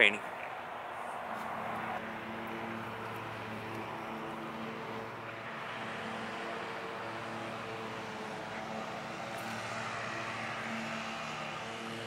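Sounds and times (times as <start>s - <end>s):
road traffic rush: 0.0s - 12.0s
distant lawn mower engine: 0.4s - 12.0s.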